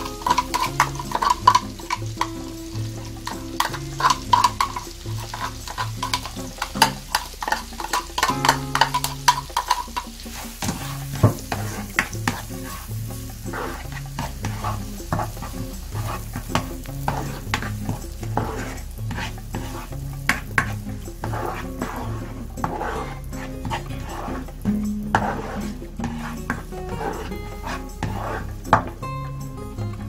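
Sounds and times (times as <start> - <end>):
spatula scraping pan: 0.0 - 29.0
onion sizzling in butter: 0.0 - 30.0.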